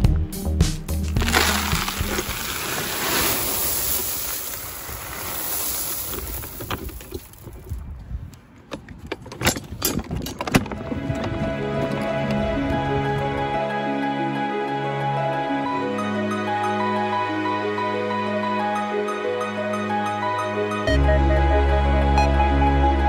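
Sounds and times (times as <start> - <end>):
pebbles clacking: 1.1 - 7.9
gravel pouring into truck bed: 1.2 - 7.5.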